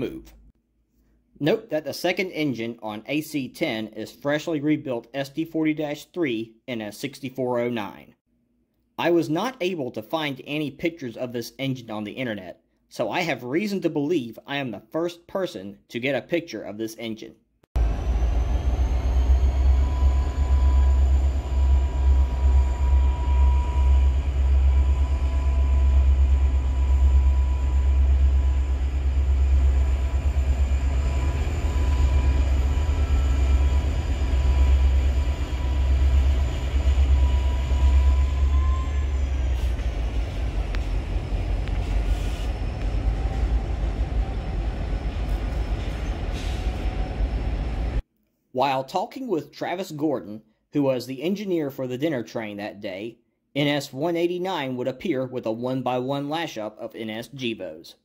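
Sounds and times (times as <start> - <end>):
diesel engine rumble: 17.8 - 48.0
high whine: 17.8 - 48.0.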